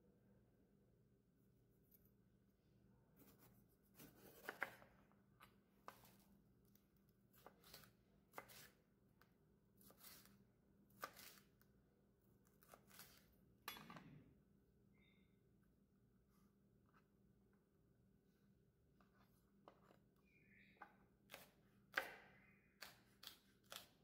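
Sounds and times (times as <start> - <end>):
knife cutting pepper: 3.2 - 4.8, 5.8 - 8.8, 9.8 - 11.7, 12.4 - 13.4, 21.3 - 24.0
knife scraping: 3.2 - 4.8, 7.4 - 8.8, 9.8 - 10.4, 11.0 - 11.6, 12.6 - 13.3.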